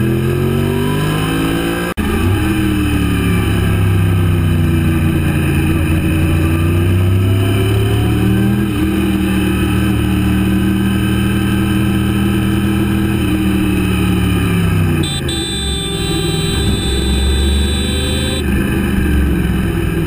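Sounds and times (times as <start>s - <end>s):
motorcycle engine running: 11.5s - 20.0s.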